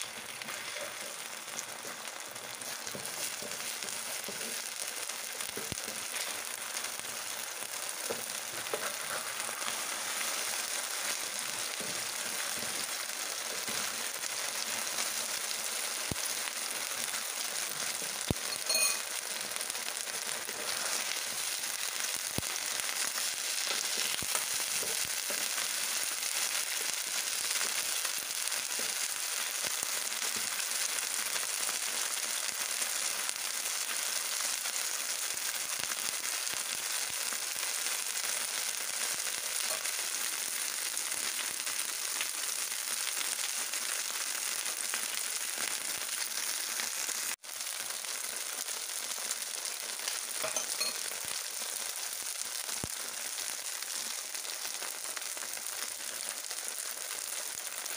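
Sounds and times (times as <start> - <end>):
seafood sizzling in oil: 0.0 - 57.9.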